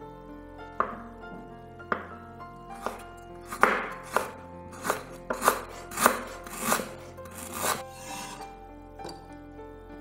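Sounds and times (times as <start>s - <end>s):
soft background music: 0.0s - 10.0s
knife chopping on cutting board: 2.8s - 8.4s.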